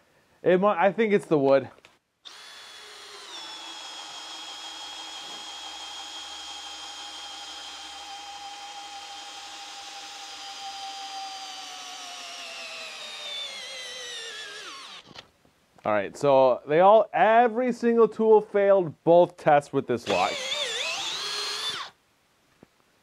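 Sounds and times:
hammer drill boring into log: 2.2 - 15.2, 20.0 - 22.0.

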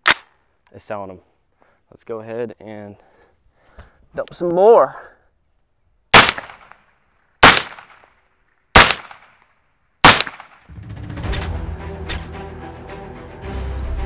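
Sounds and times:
suppressed rifle shots: 0.0 - 0.3, 6.1 - 6.8, 7.4 - 8.1, 8.7 - 9.4, 10.0 - 10.7
music: 10.7 - 14.0.

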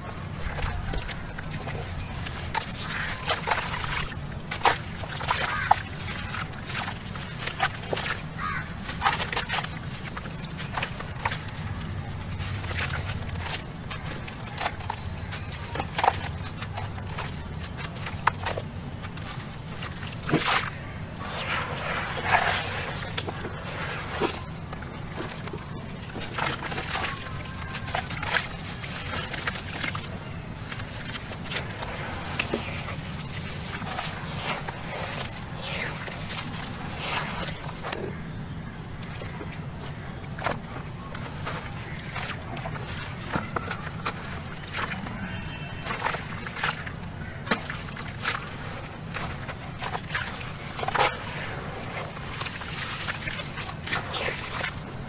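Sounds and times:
grit splashing into water: 0.4 - 38.0.

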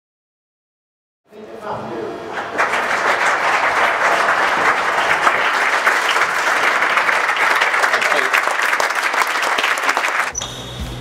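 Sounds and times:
audience applauding: 2.3 - 10.4.

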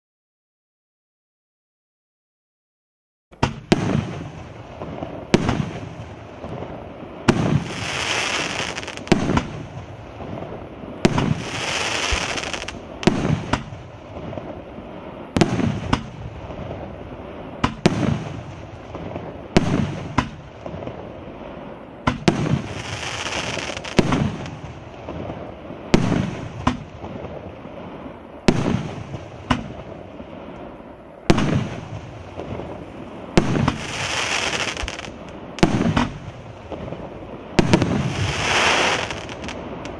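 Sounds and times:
firework bangs: 3.4 - 30.6, 31.2 - 39.9
firework hissing crackle: 3.4 - 39.9.

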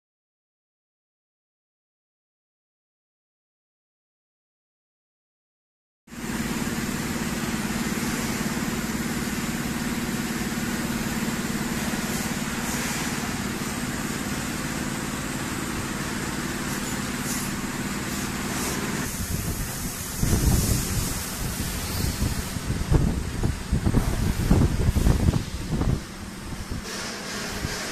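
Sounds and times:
factory machinery drone: 6.1 - 27.9
hissing noise: 6.2 - 27.9.

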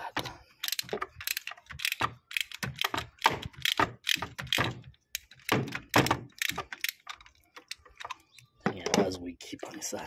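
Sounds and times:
ratchet wrench clicking: 0.6 - 5.3, 6.4 - 7.2.

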